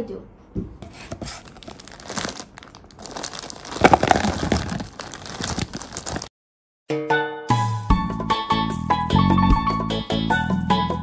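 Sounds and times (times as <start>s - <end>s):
plastic bag crinkling: 1.2s - 6.3s.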